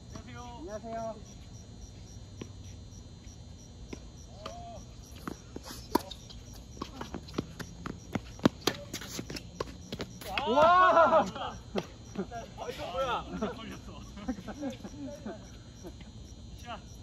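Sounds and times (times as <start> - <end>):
crickets chirping: 0.0 - 17.0
tennis ball strikes and bounces: 5.2 - 7.7.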